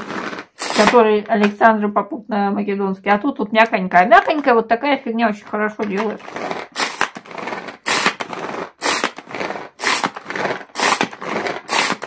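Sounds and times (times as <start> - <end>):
pull-cord chopper whirring: 0.0 - 1.5, 5.8 - 12.0.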